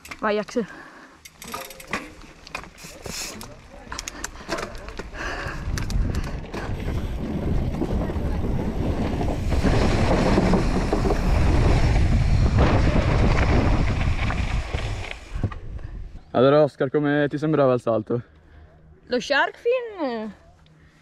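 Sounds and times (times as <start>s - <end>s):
bike tyres rolling on boards: 2.1s - 15.9s
wind rushing over microphone: 5.1s - 16.2s.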